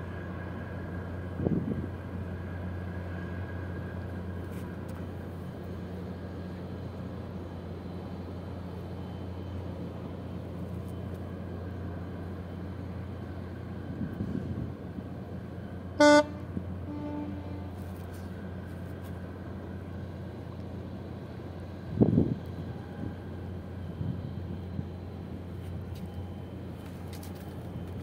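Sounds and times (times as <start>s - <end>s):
ship diesel engines droning: 0.0s - 28.0s
ship's horn blast: 15.9s - 18.2s.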